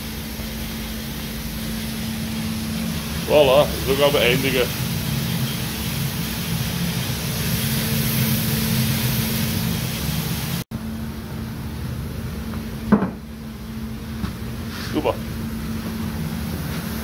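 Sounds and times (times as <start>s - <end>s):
machine hum: 0.0s - 17.0s
coffee beans churning: 2.3s - 10.6s.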